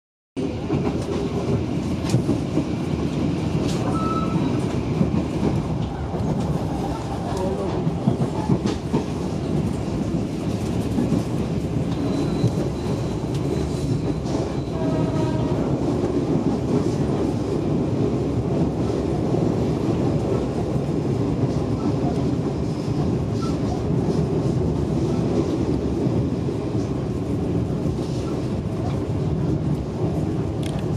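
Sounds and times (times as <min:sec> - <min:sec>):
train wheels rumbling on rails: 0:00.4 - 0:30.9.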